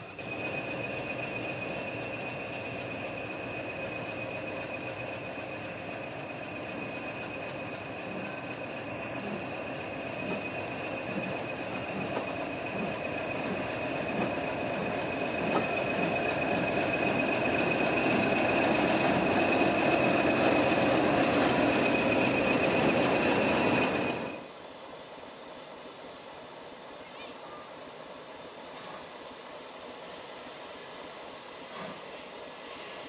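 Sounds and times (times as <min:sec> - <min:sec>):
diesel locomotive engine running: 0:00.0 - 0:24.5.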